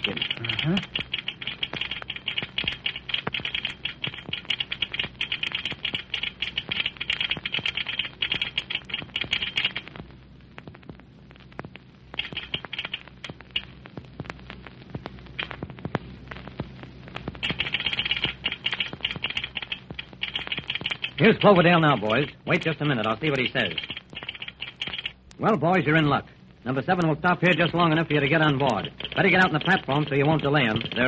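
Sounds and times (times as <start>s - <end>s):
telegraph clicking morse code: 0.0s - 9.9s, 12.2s - 13.7s, 17.4s - 25.2s, 26.9s - 31.0s
low recording hum: 0.0s - 31.0s.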